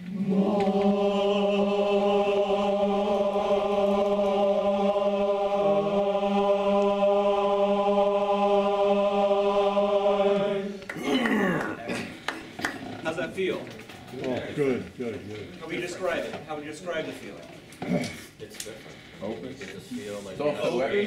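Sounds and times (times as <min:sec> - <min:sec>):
chorus singing sustained note: 0:00.0 - 0:10.8.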